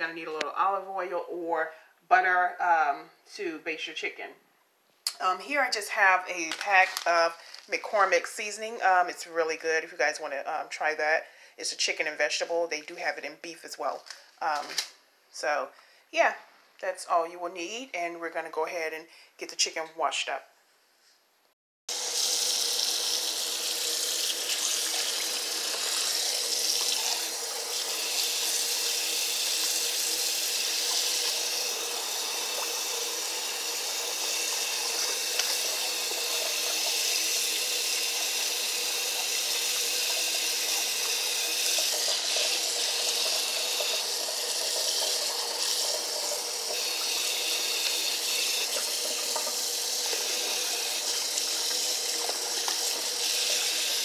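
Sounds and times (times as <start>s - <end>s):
tap running into basin of water: 22.1s - 54.0s.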